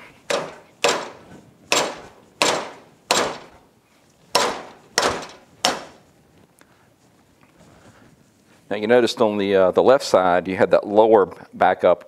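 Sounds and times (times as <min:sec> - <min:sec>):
sharp ringing metal knocks: 0:00.3 - 0:03.6, 0:04.3 - 0:06.0.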